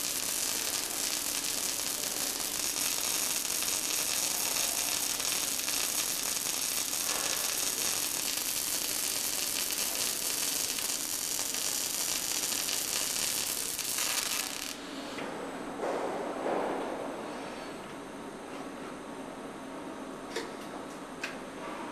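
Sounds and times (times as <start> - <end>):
welding arc crackling: 0.0 - 14.8.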